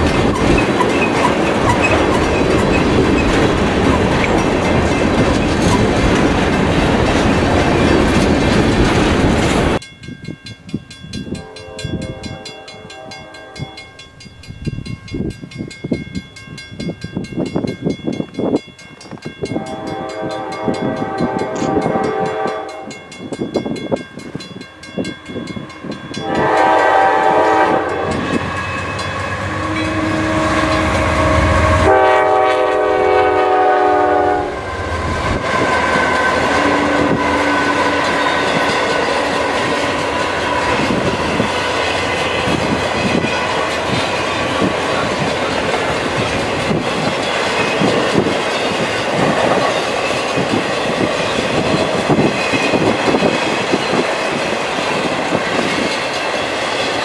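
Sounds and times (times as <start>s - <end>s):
train wheels rumbling and clattering: 0.0s - 9.9s, 13.7s - 57.0s
train air horn chord: 11.4s - 14.0s, 19.5s - 23.0s, 26.2s - 38.6s.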